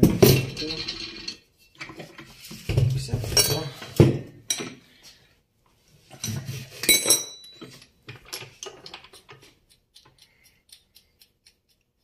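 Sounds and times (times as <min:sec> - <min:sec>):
metal tools clinking and clattering: 0:00.0 - 0:04.8, 0:06.1 - 0:09.5
ringing metal clink: 0:06.8 - 0:07.8.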